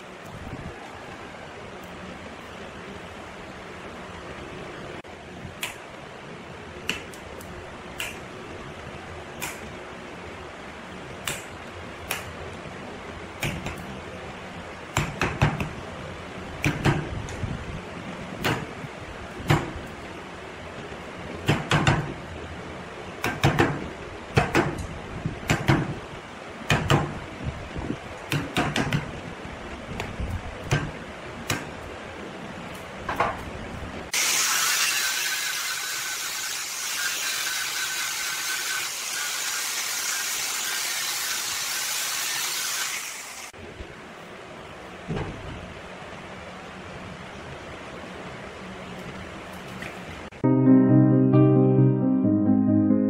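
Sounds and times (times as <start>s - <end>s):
steady low background noise: 0.0s - 34.2s, 43.5s - 53.0s.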